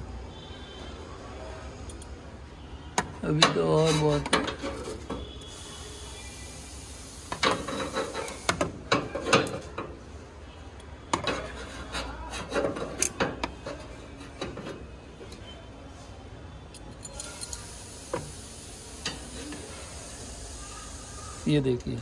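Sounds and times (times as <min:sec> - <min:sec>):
metal strip scraping: 0:07.6 - 0:09.7, 0:11.1 - 0:14.9.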